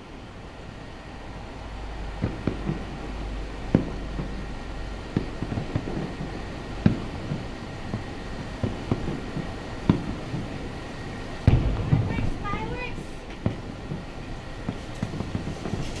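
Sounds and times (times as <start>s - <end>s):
steady low hum: 0.0s - 16.0s
distant firework shells bursting: 3.6s - 4.4s, 5.1s - 16.0s.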